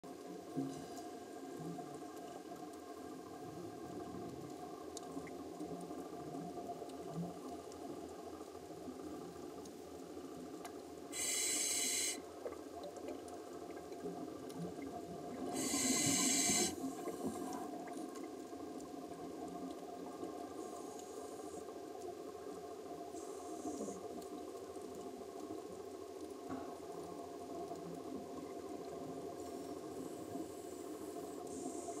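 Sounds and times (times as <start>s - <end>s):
low underwater hum: 0.1s - 32.0s
scuba regulator breathing and bubbles: 0.4s - 25.4s, 26.5s - 32.0s.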